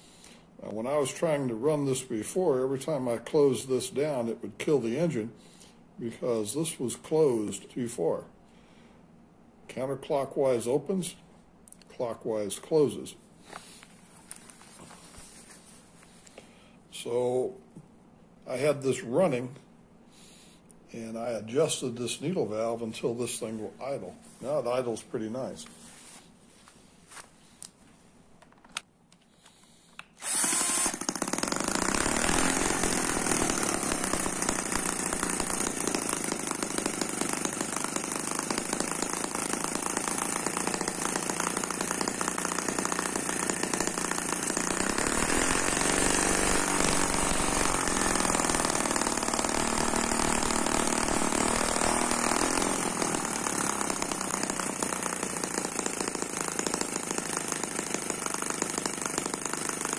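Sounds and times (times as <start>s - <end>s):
model engine running loudly: 30.2s - 59.9s.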